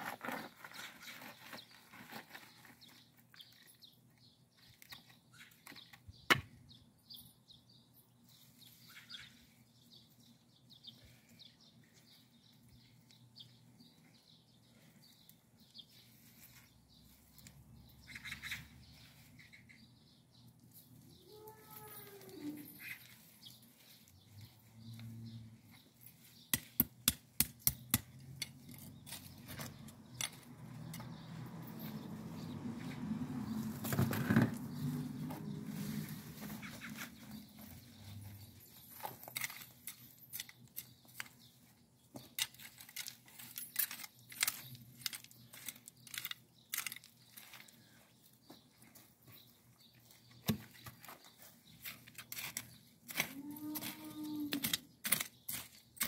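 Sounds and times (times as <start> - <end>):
bird chirps: 0.6 - 26.8, 34.5 - 43.0.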